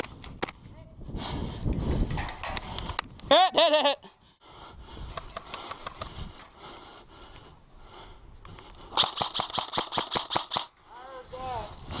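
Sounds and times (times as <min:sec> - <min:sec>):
airsoft rifle rapid fire: 0:09.0 - 0:10.7.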